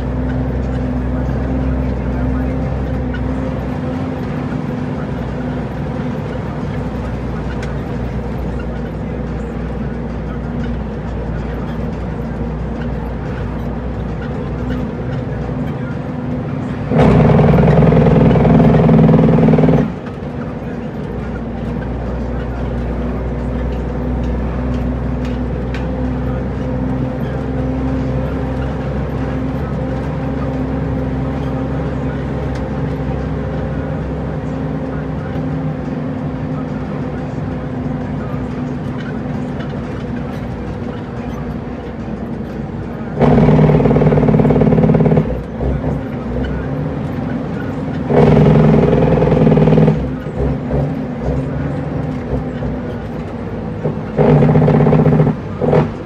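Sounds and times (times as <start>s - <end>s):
diesel truck engine running: 0.0s - 56.0s
loud steady horn blast: 16.9s - 19.9s, 43.2s - 45.4s, 48.1s - 50.2s.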